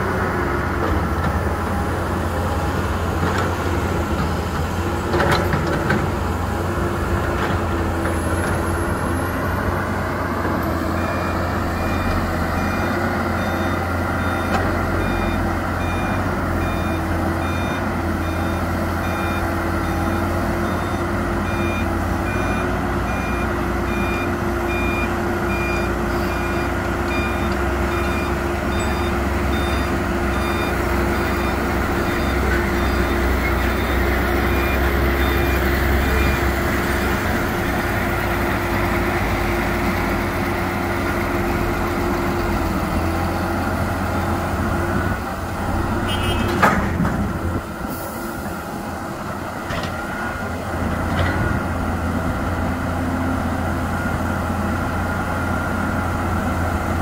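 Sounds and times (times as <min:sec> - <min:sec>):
low diesel engine rumble: 0:00.0 - 0:57.0
reversing alarm beeping: 0:10.7 - 0:36.9.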